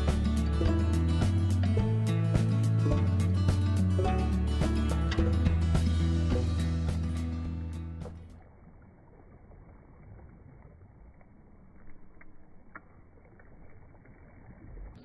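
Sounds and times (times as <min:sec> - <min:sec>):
lake water lapping: 0:00.0 - 0:15.0
small water splashes: 0:08.0 - 0:15.0.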